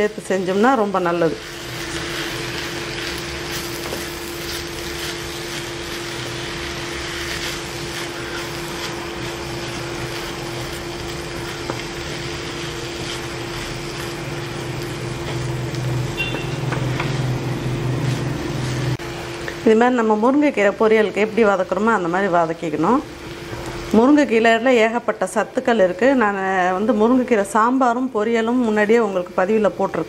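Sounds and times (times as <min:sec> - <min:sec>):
food crackling in frying: 0:00.0 - 0:30.0
steady hum: 0:00.0 - 0:30.0
spatula scraping frying pan: 0:01.5 - 0:14.3.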